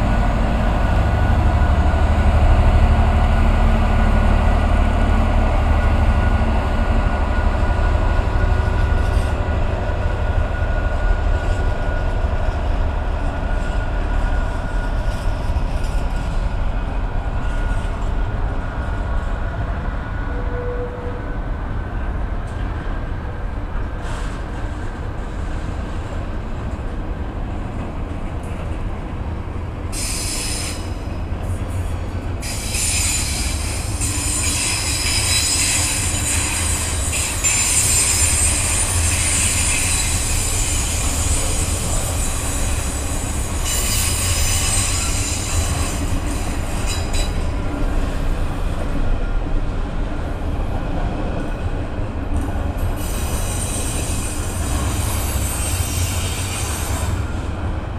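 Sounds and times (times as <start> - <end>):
train wheels rumbling on rail: 0.0 - 57.9
high-pitched wagon squeal: 32.4 - 47.4.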